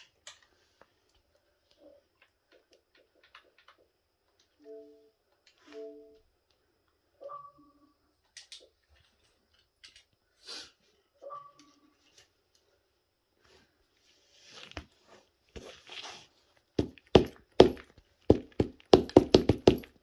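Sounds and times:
squishing and scraping of cake: 13.4s - 16.8s
heel knocks on wooden floor: 16.8s - 20.0s.

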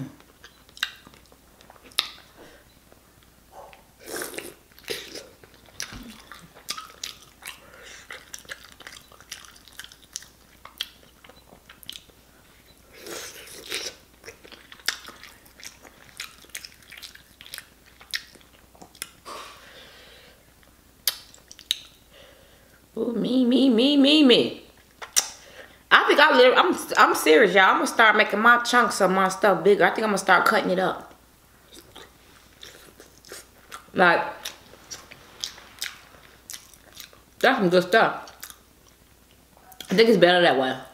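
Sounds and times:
person chewing: 0.2s - 2.6s, 3.6s - 19.5s, 21.0s - 22.0s, 31.6s - 37.4s, 38.3s - 39.9s
wet mouth clicks: 21.0s - 22.0s, 25.0s - 25.4s.

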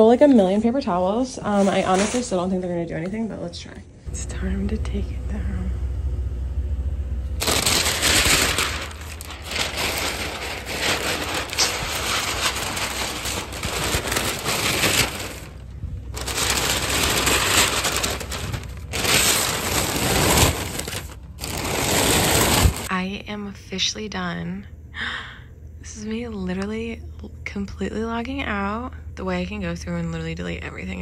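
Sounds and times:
paper crackling and rustling: 7.4s - 22.9s.

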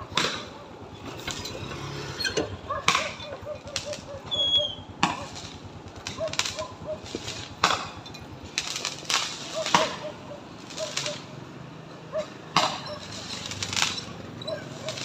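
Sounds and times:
fireworks bangs: 0.0s - 1.6s, 2.4s - 11.6s, 12.4s - 15.0s.

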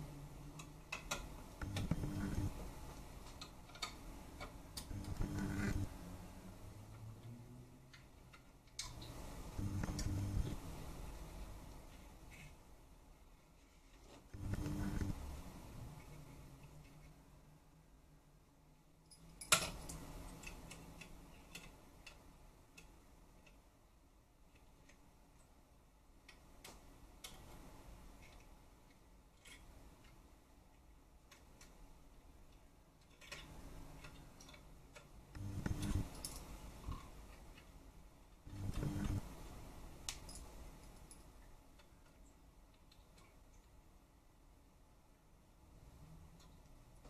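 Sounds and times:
short low hum: 1.6s - 2.6s, 4.9s - 6.1s, 9.4s - 11.0s, 14.4s - 16.5s, 35.4s - 36.1s, 38.5s - 39.4s.

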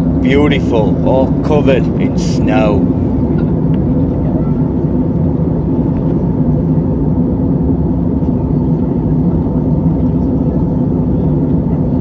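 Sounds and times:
faint steady hum: 0.0s - 7.2s
airliner cabin drone: 0.0s - 12.0s.

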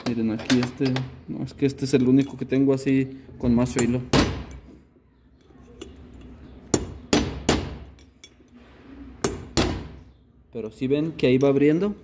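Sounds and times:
hammer striking metal chisel: 3.6s - 4.8s, 5.8s - 8.4s, 9.2s - 10.0s.

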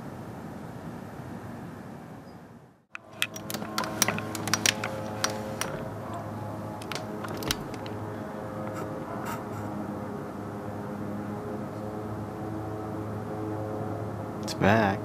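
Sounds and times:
low droning hum: 3.0s - 14.4s.

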